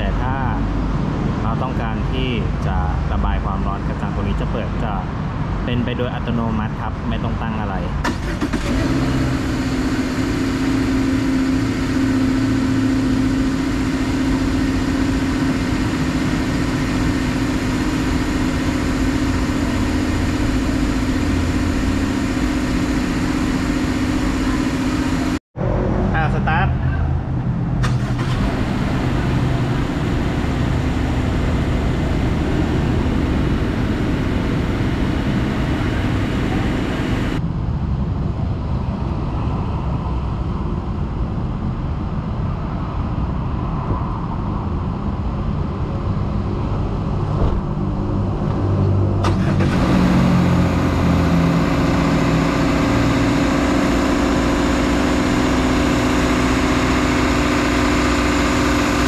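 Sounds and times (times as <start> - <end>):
car engine idling: 0.0 - 25.4, 26.1 - 37.4, 49.2 - 59.0
rushing noise: 0.0 - 59.0.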